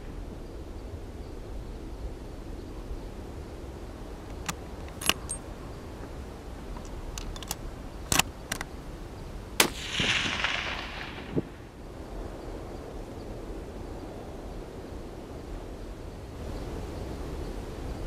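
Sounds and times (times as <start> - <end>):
sharp clicks: 4.3 - 5.4, 6.7 - 8.8, 9.6 - 11.6
rifle shot: 9.6 - 11.8.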